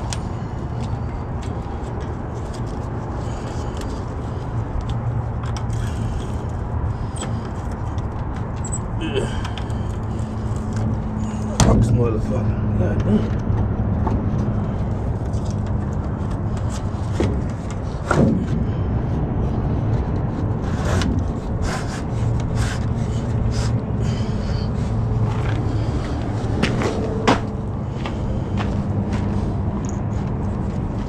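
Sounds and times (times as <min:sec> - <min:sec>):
footsteps on gritty concrete: 0:24.7 - 0:31.0.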